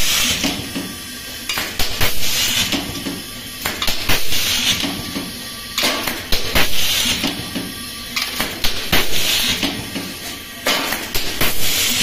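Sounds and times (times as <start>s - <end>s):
compressed air hiss: 0.0s - 0.8s, 1.6s - 5.0s, 5.8s - 7.6s, 8.7s - 12.0s.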